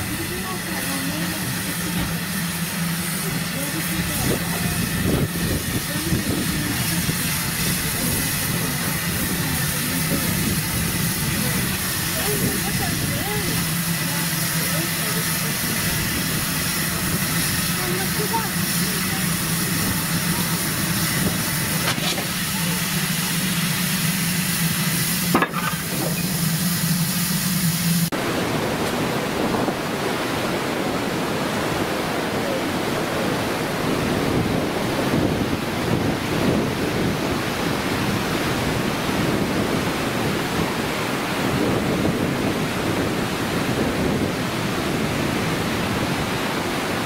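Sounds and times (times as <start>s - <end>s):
steam locomotive hissing: 0.0s - 28.1s
steady rushing noise: 0.0s - 47.0s.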